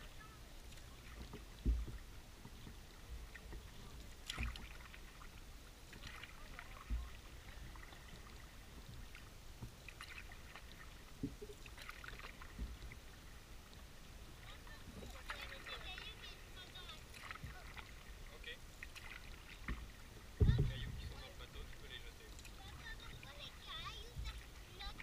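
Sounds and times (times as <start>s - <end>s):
water dripping and splashing: 0.0s - 25.0s
paddle stroke thump: 1.1s - 5.2s, 5.9s - 8.3s, 9.6s - 13.0s, 16.8s - 18.1s, 18.8s - 21.7s.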